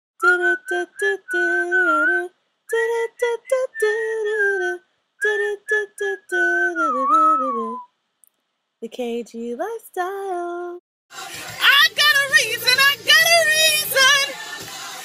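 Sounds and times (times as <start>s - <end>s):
woman singing unaccompanied: 0.2s - 7.9s, 8.8s - 15.0s.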